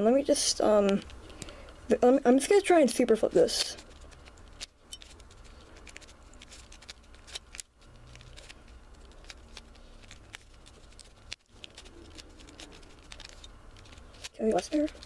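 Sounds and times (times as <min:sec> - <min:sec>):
puzzle cube plastic clicks: 0:03.4 - 0:15.0.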